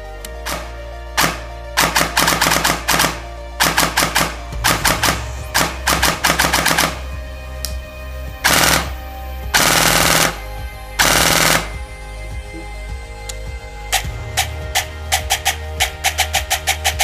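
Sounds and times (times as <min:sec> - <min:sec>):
airsoft rifle firing bursts: 0:00.5 - 0:07.0, 0:08.5 - 0:09.0, 0:09.6 - 0:10.4, 0:11.0 - 0:11.8.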